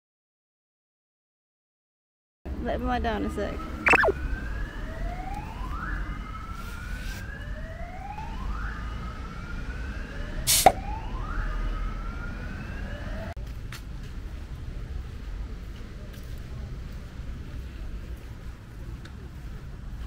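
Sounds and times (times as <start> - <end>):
electronic alarm whooping: 3.8 - 4.2.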